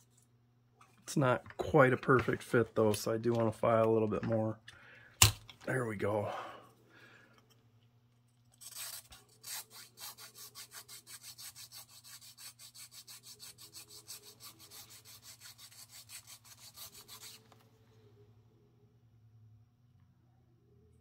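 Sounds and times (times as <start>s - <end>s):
needle file rasping: 8.6s - 17.4s.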